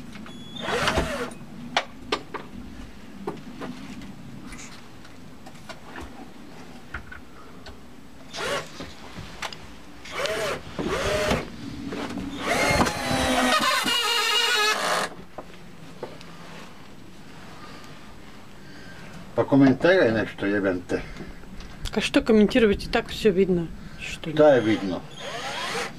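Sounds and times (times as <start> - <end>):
cordless drill driving screws: 0.6 - 1.4, 8.3 - 8.7, 10.1 - 11.4, 12.3 - 15.2, 24.7 - 25.9.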